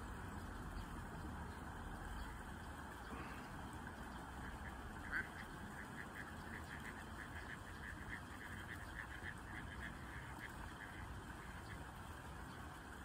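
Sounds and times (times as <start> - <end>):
low steady hum: 0.0 - 13.0
ducklings peeping: 3.0 - 12.7.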